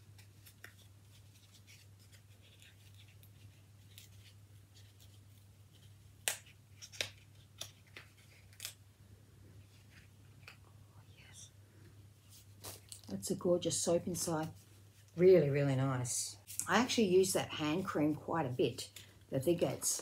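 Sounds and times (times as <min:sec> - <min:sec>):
paper rustling: 0:00.0 - 0:08.8, 0:12.2 - 0:13.1.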